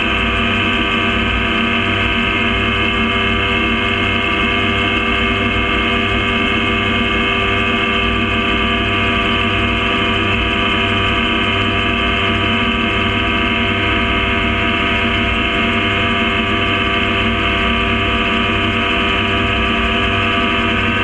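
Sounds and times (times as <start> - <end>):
gyrocopter engine droning: 0.0 - 21.0.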